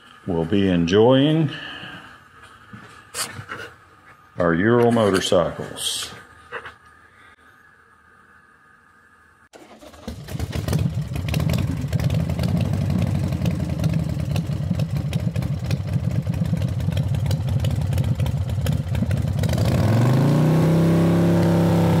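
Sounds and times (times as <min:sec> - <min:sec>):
motorcycle engine revving: 0:09.6 - 0:22.0.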